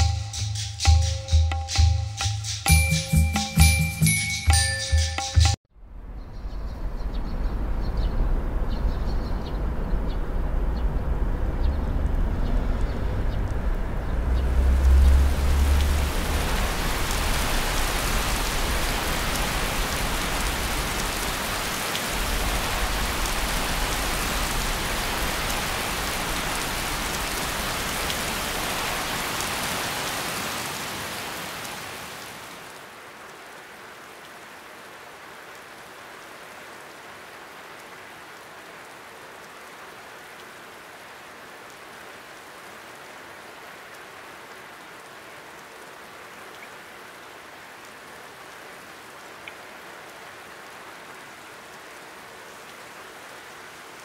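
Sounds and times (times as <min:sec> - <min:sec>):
heavy rain hissing: 0:07.5 - 0:33.0.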